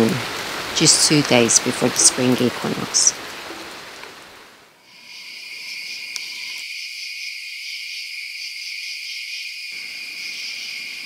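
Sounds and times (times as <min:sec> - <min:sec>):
crickets chirping: 0:04.8 - 0:11.0.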